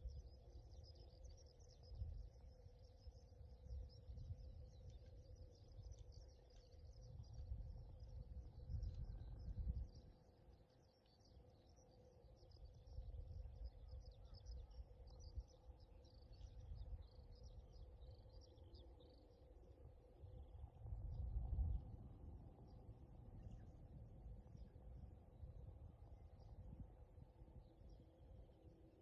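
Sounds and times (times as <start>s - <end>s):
small birds chirping: 0.0s - 19.8s
faint steady hum: 0.0s - 29.0s.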